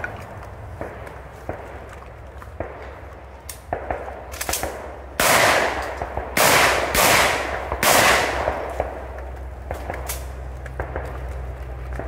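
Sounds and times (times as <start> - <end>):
shotgun shots: 3.7 - 11.1.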